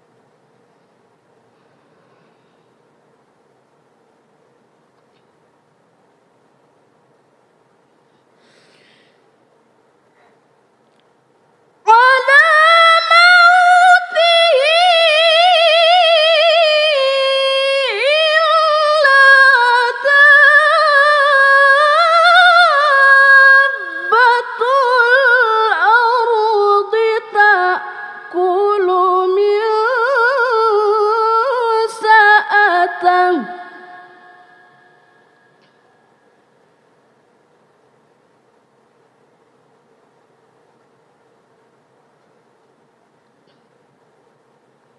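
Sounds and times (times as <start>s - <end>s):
woman reciting melodically: 11.9s - 35.4s.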